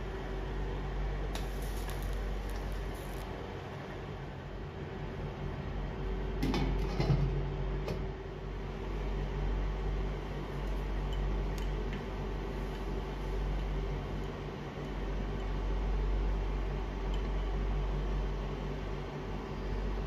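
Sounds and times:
cooling fan hum: 0.0s - 20.0s.

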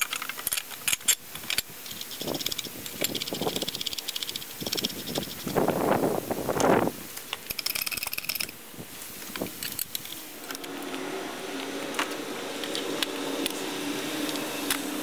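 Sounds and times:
metal clicks and clinks: 0.0s - 5.5s, 7.4s - 8.6s
faint steady hum: 0.0s - 15.0s.

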